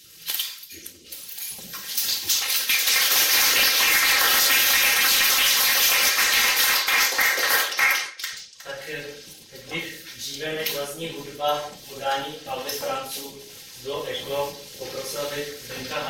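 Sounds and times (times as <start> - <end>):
audience applauding: 2.3 - 8.4.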